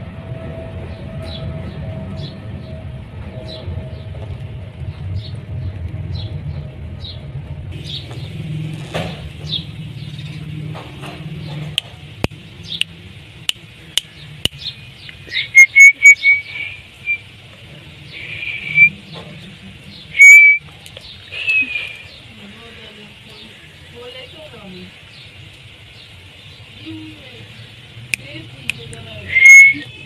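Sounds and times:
parakeet chirps: 14.6 - 17.3, 20.0 - 20.6
parakeet high whistled calls: 15.3 - 17.3, 18.2 - 19.0, 20.1 - 20.6, 29.2 - 30.0.

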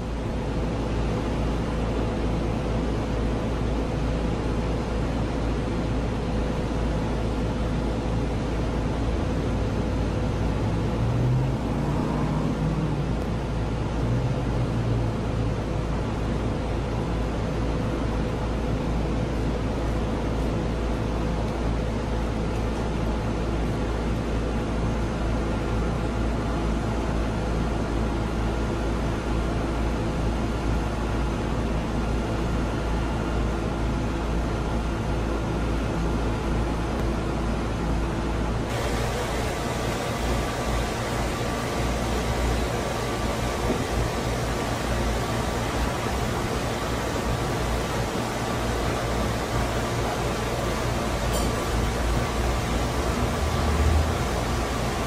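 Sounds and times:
vehicle engine hum: 0.0 - 55.0
road noise rumble: 8.0 - 18.8, 29.5 - 55.0
steady hiss: 38.7 - 53.3.

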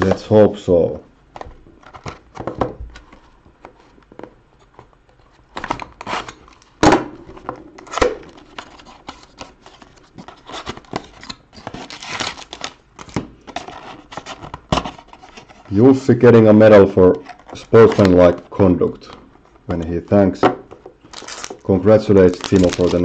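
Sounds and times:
cardboard rustling: 1.4 - 19.5, 20.7 - 23.0
cardboard scraping and tearing: 8.6 - 12.7, 21.2 - 23.0.

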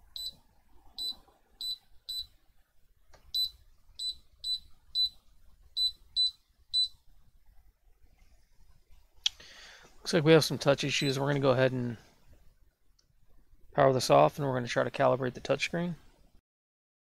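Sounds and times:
short high beeps: 0.1 - 0.4, 1.0 - 2.3, 3.3 - 5.2, 5.8 - 7.0.

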